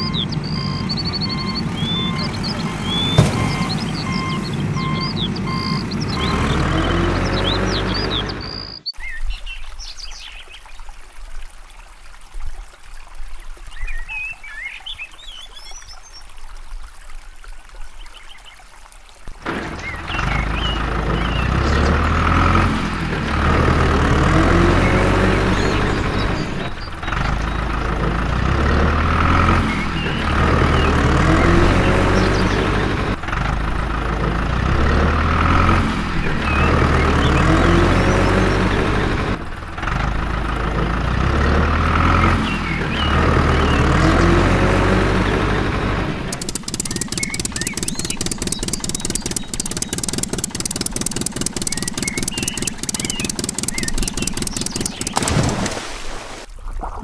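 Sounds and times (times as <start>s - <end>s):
engine idling: 0.0s - 8.8s, 19.4s - 44.0s, 45.0s - 55.7s
heavy engine revving: 0.0s - 8.8s, 19.4s - 55.8s.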